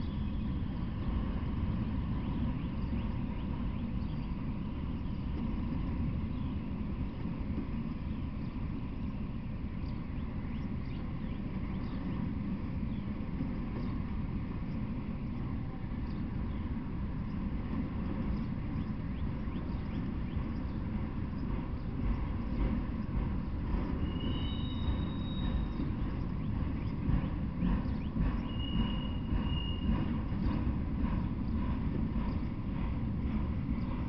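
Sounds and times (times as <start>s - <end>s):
train wheels rumbling on rails: 0.0s - 34.0s
faint repeated clicking: 13.0s - 24.0s, 24.9s - 34.0s
high-pitched wheel squeals: 24.0s - 25.9s, 28.4s - 30.1s.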